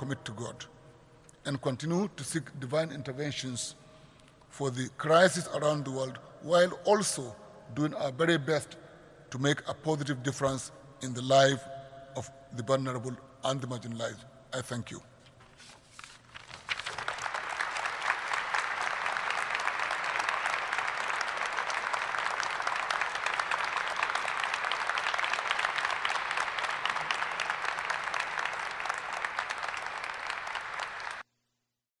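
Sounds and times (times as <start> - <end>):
audience applauding: 16.6 - 31.2.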